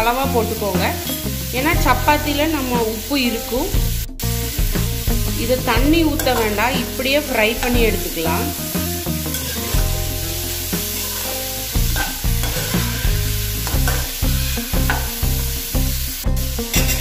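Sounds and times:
background music with steady beat: 0:00.0 - 0:17.0
vegetables sizzling in oil: 0:00.0 - 0:17.0
spatula scraping pan: 0:08.6 - 0:09.8, 0:10.7 - 0:15.1, 0:16.7 - 0:17.0.

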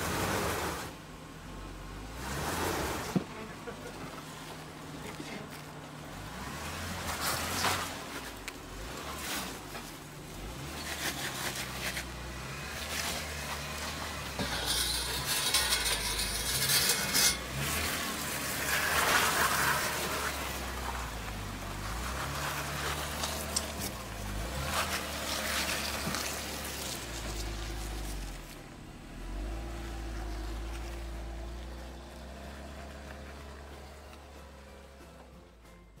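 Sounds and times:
engine running at low revs: 0:00.0 - 0:35.8
tyres grinding on rock: 0:05.4 - 0:28.6.

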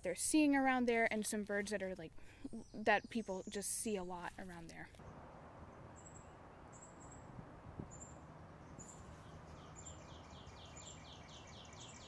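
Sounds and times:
songbird chips and trills: 0:07.9 - 0:12.0.

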